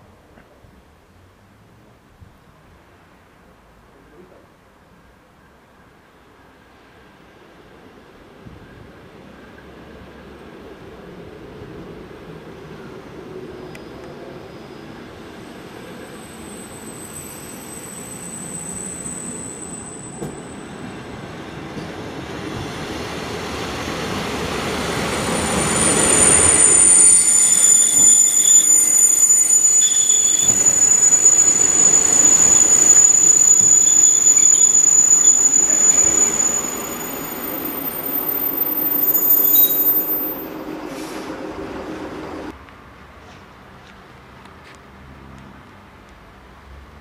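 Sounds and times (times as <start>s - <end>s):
train rumbling: 6.8s - 42.6s
high metallic squeal: 13.5s - 21.6s, 25.0s - 42.5s.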